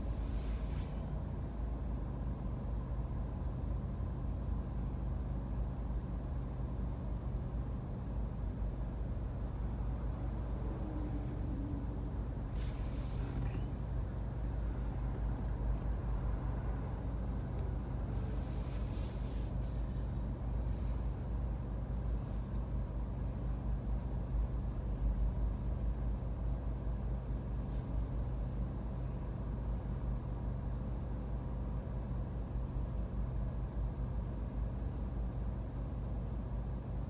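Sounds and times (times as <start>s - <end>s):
low rumble inside car: 0.0s - 37.0s
short hiss: 12.5s - 13.4s.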